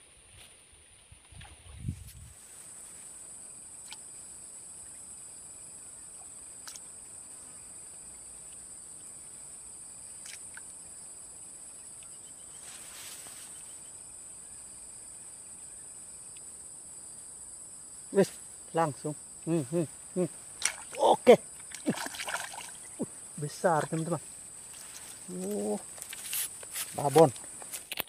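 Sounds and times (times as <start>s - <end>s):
insects chirring: 0.0s - 28.0s.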